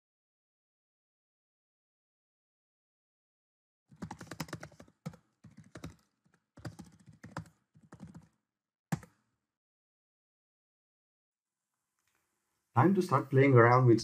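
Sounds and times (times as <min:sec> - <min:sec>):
computer keyboard typing: 0:03.9 - 0:09.2.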